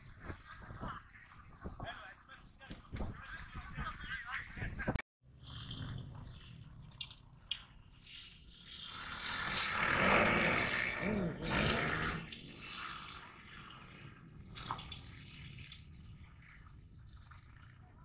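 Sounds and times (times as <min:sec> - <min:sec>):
dirt bike engine revving: 0:08.7 - 0:13.2.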